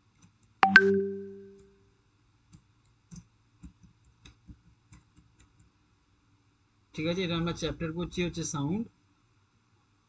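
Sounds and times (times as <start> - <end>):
ringing tone: 0.6 - 1.6.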